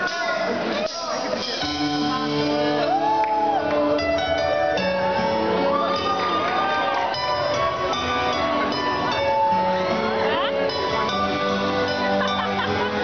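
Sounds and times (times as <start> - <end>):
audience shouting and cheering: 0.0 - 13.0
live pop band playing: 0.0 - 13.0.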